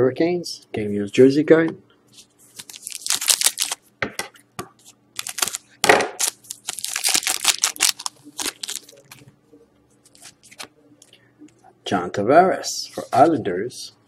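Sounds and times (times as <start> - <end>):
foil wrapper tearing and crumpling: 2.6 - 3.8, 5.2 - 9.2.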